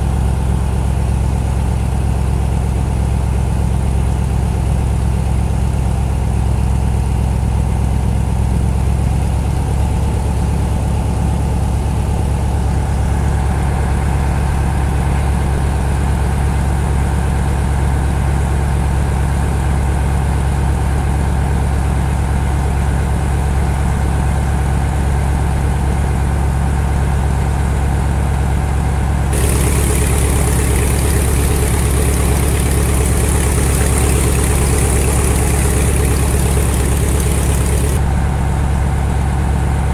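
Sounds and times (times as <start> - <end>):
churning propeller wash hiss: 29.3 - 38.0
boat engine droning: 29.3 - 38.4.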